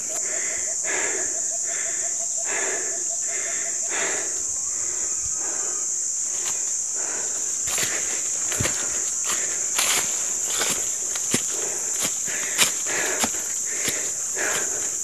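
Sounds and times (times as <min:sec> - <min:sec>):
insects droning: 0:00.0 - 0:15.0
pulsing insect call: 0:00.0 - 0:15.0
footsteps on dry leaves: 0:06.4 - 0:14.8.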